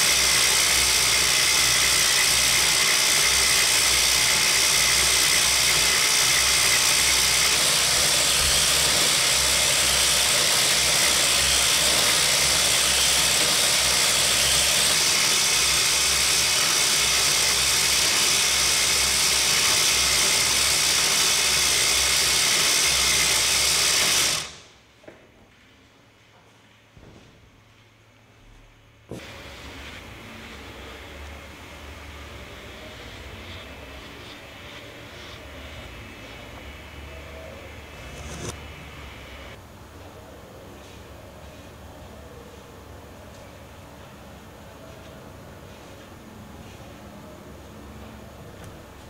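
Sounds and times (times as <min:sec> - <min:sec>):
knitting machine running: 0:00.0 - 0:24.7, 0:29.1 - 0:39.6.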